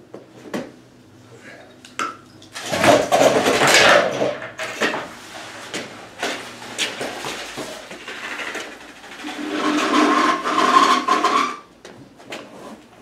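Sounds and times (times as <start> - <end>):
grating metal scrape: 8.3 - 11.7.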